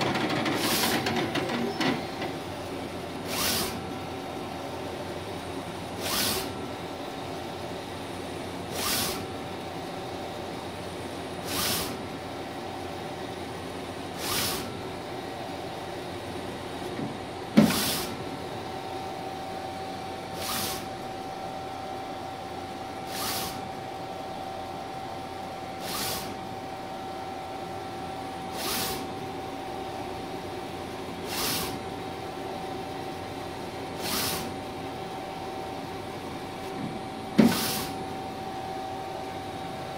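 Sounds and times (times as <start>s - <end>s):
printer hum with whine: 0.0s - 39.9s
printer carriage swish: 36.8s - 38.0s.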